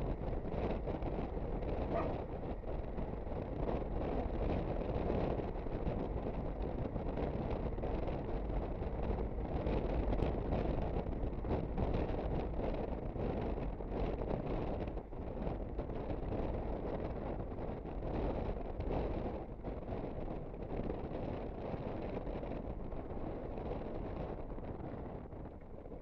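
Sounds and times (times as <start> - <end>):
wind on microphone: 0.0 - 26.0.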